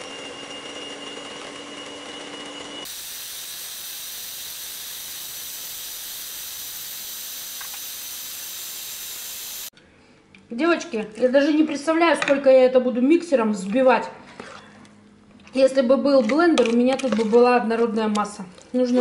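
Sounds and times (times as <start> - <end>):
electric mixer whirring: 0.0 - 9.7
high steady whine: 2.9 - 9.7.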